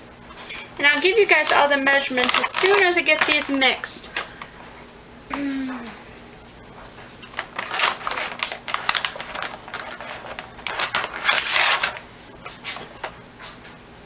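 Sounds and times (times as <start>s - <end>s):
plastic bag crinkling: 1.4s - 3.6s, 7.3s - 12.0s.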